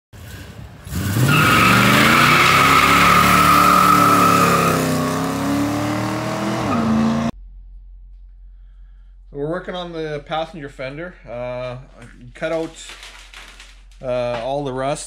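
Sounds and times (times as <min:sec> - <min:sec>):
tire squeal: 0:00.2 - 0:05.6, 0:06.5 - 0:07.3
car engine revving: 0:00.8 - 0:07.4.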